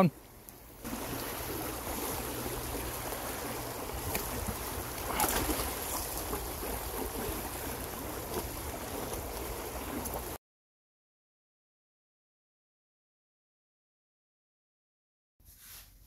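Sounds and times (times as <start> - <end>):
stream rushing over stones: 0.8 - 10.4.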